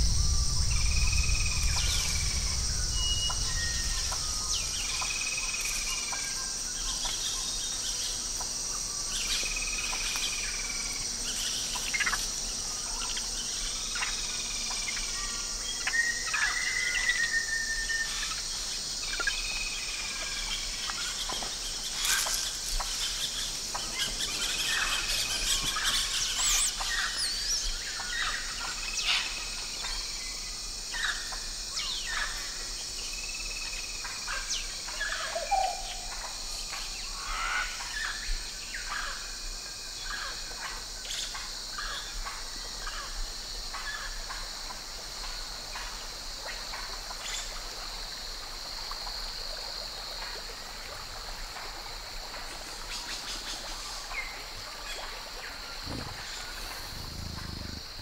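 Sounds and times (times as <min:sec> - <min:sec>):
high-pitched insect buzz: 0:00.0 - 0:08.2, 0:22.0 - 0:27.7, 0:55.8 - 0:58.0
quick bird chirps: 0:55.9 - 0:58.0.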